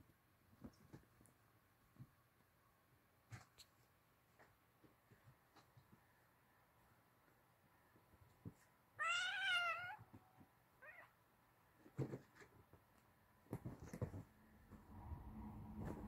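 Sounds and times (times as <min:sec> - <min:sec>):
kitten meowing: 0:09.0 - 0:10.0.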